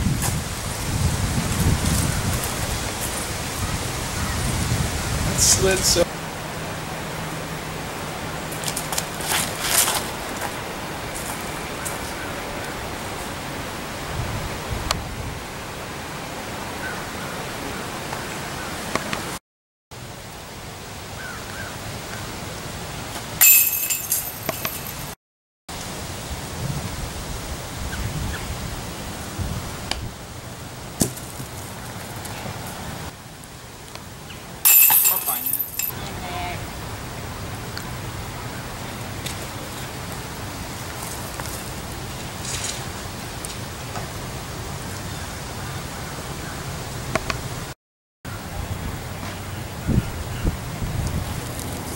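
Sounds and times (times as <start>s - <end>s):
wind buffeting microphone: 0.0s - 6.0s, 14.0s - 15.5s, 26.5s - 30.2s, 48.6s - 51.9s
outdoor hiss: 0.0s - 14.5s
chains jingling: 23.4s - 25.1s, 34.7s - 36.0s
disc hitting metal basket: 23.4s - 25.1s, 34.7s - 36.0s.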